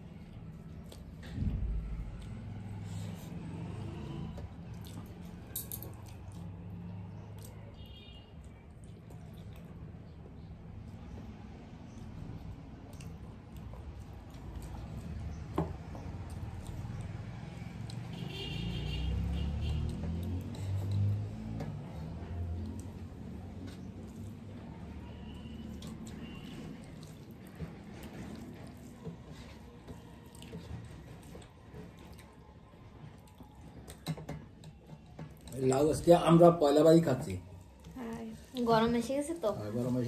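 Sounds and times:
soft chewing: 0.0 - 18.3, 19.7 - 35.6
fingers mixing rice on plates: 19.2 - 36.4.

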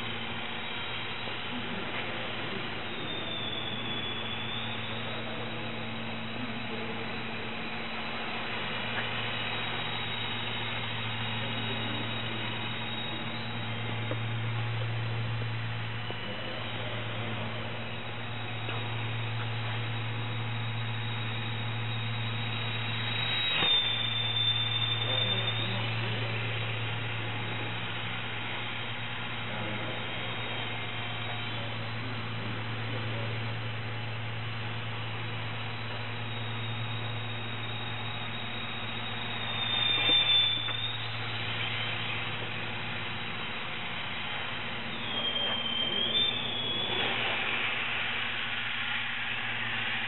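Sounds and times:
electric motor and propeller whine: 0.0 - 50.0
steady low hum: 0.0 - 50.0.

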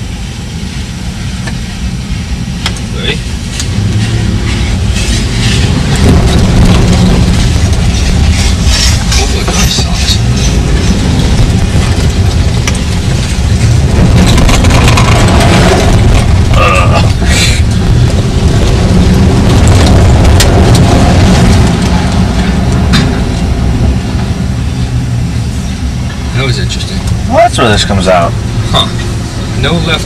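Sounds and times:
truck engine and road rumble: 0.0 - 30.0
knocks and rattles: 4.4 - 24.0.

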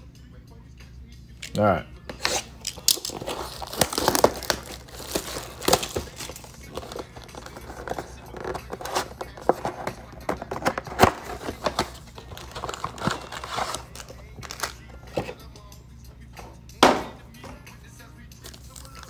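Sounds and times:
plastic wrapping crinkling: 2.2 - 15.4, 18.4 - 19.0.

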